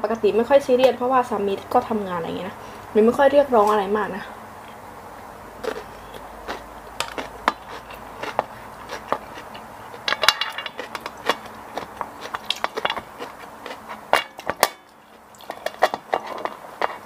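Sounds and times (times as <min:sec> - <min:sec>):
chewing: 0:05.6 - 0:17.0.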